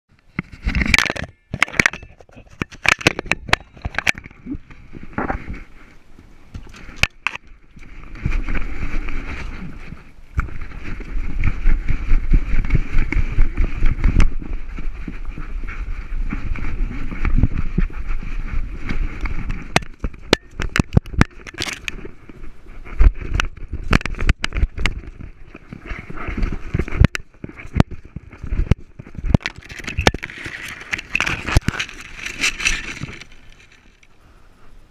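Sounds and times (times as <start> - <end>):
camera handling clicks and rattles: 0.4 - 5.4, 6.6 - 7.5, 18.9 - 22.1, 23.2 - 34.1.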